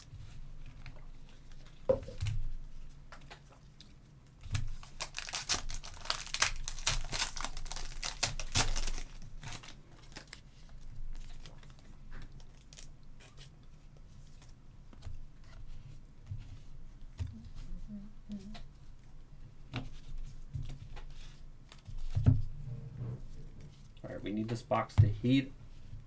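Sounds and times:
foil wrapper tearing and crinkling: 4.5s - 10.4s.

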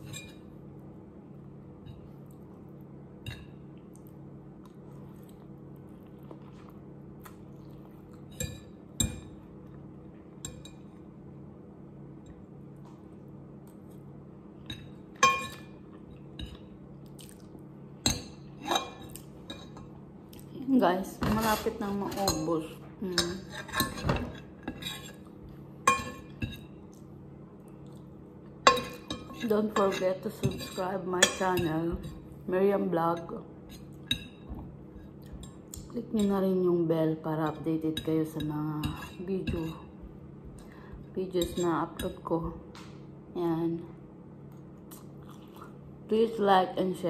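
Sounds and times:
steady low hum: 0.0s - 47.0s
fork clinking against ceramic bowl: 28.6s - 32.2s.

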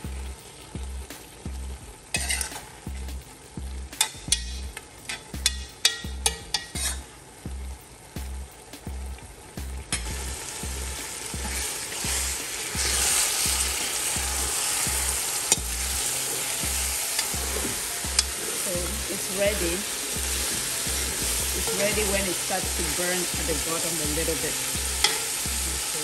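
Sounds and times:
soup sizzling: 0.0s - 26.0s
metal spoon scraping a pot: 2.1s - 2.6s, 4.0s - 7.1s, 25.0s - 25.3s.

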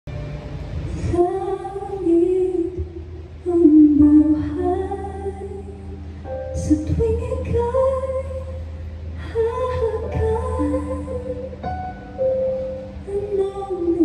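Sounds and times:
steady low hum: 0.1s - 14.0s
woman singing a slow ballad: 0.9s - 11.7s, 13.0s - 14.0s.

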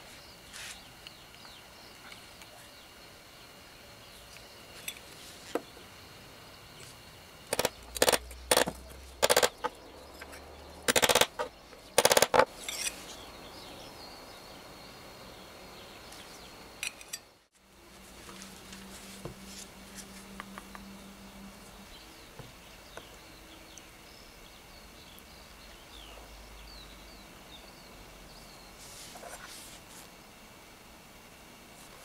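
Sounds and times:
hand tool scraping metal: 10.9s - 13.1s.

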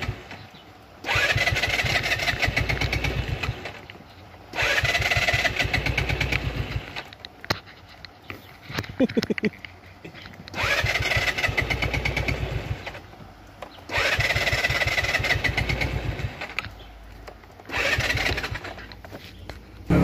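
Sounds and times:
scooter electric starter cranking: 1.0s - 7.7s, 10.4s - 13.1s, 13.7s - 19.1s.

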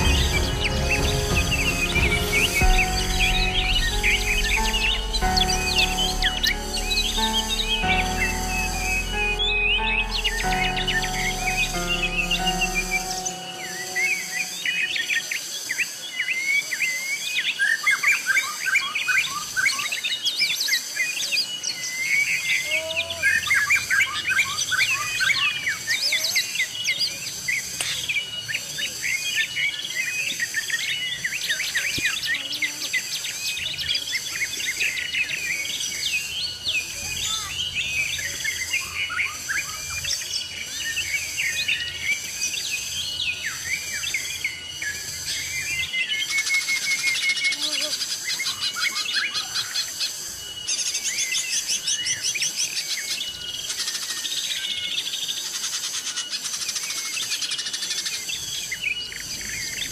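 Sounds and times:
birds chirping and trilling: 0.0s - 59.9s
high insect drone: 22.3s - 57.0s.

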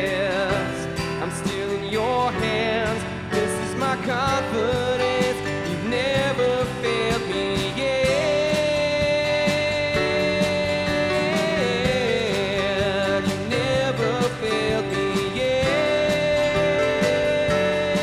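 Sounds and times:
drums: 0.0s - 18.0s
gliding melody line: 0.0s - 18.0s
keyboard: 0.0s - 18.0s
strummed guitars: 0.0s - 18.0s.

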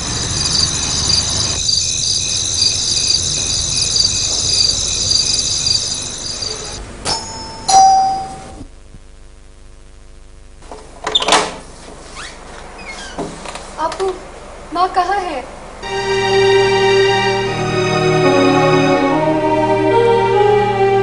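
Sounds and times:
steady high chirring: 0.0s - 8.6s
two-note doorbell ringing: 5.8s - 8.6s.

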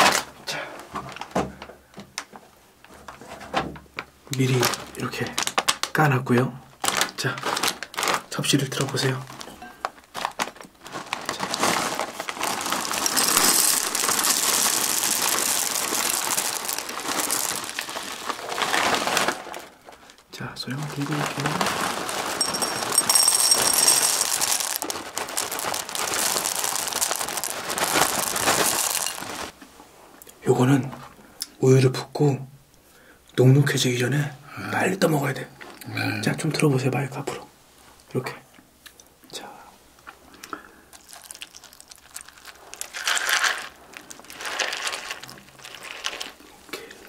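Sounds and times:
cereal pouring into glass bowl: 11.3s - 19.6s, 20.8s - 29.6s, 40.9s - 46.5s.

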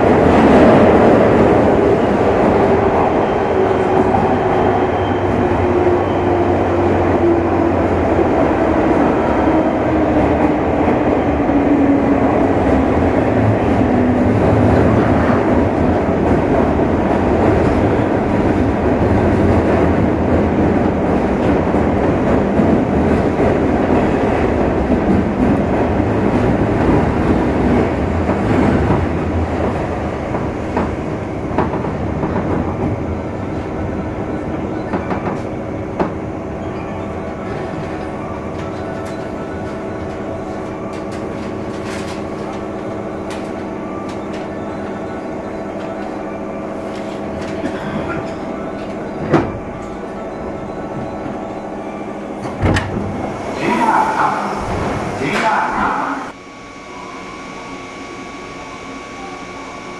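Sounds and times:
train wheels rumbling on rail: 0.0s - 56.4s
traction motor whine: 56.3s - 59.9s.

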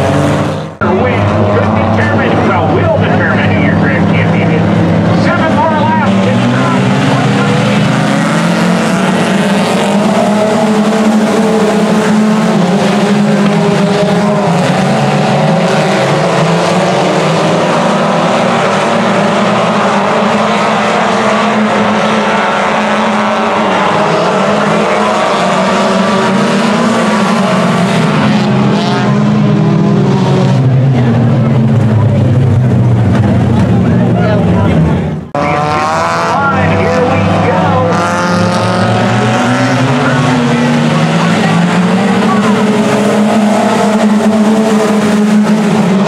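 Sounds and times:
stock car engines racing: 0.0s - 46.0s.

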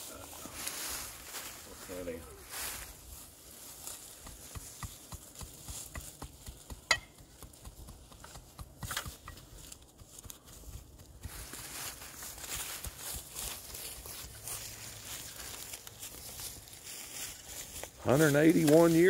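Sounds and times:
shovel scraping dirt and gravel: 8.1s - 10.5s.

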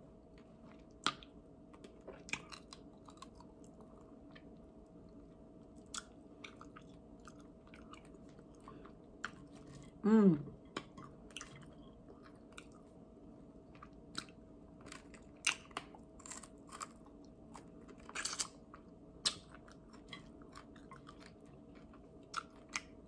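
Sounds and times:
faint steady hum: 0.0s - 23.0s
crunchy eating and chewing: 0.1s - 10.0s, 10.6s - 23.0s.

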